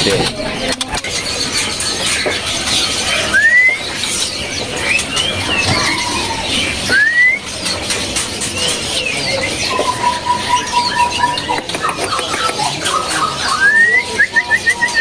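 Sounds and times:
songbirds chirping and whistling: 0.0s - 15.0s
long held bird whistle: 3.3s - 3.8s, 6.9s - 7.5s
loud rising bird whistles: 6.9s - 7.5s.

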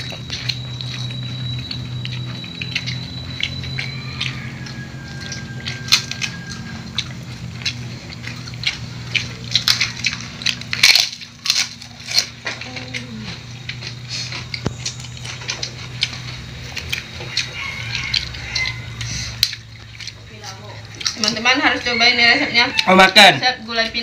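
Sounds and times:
crisp food crunching: 0.0s - 24.0s
steady low hum: 0.0s - 24.0s.

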